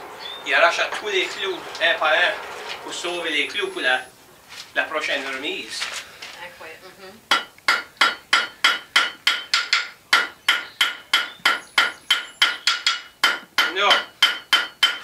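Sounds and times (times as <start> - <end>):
hammer ringing on anvil: 7.3 - 15.0.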